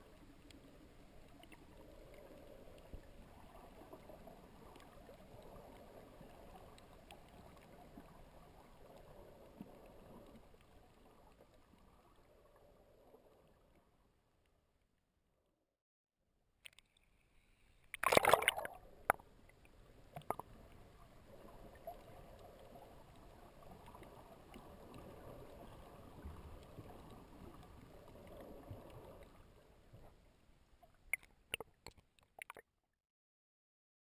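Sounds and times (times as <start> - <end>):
water splashes: 17.9 - 19.4, 20.1 - 30.0, 30.8 - 32.6.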